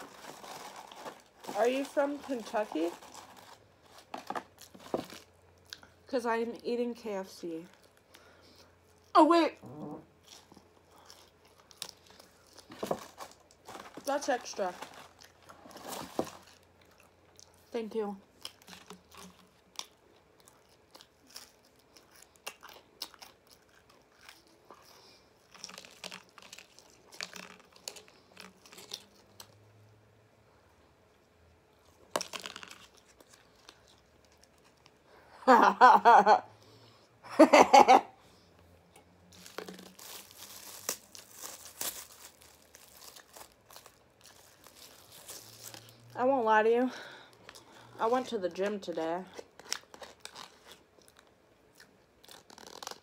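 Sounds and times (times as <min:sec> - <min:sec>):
plastic wrapper crinkling: 0:00.0 - 0:05.4, 0:10.4 - 0:17.1, 0:25.4 - 0:29.6, 0:32.1 - 0:35.0, 0:39.3 - 0:46.2, 0:47.0 - 0:51.4, 0:52.2 - 0:53.0.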